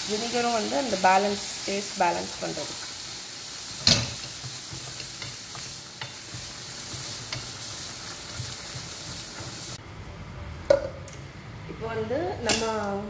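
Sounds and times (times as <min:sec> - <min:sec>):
vegetables sizzling in a frying pan: 0:00.0 - 0:09.8
wooden spatula scraping a pan: 0:04.0 - 0:09.8.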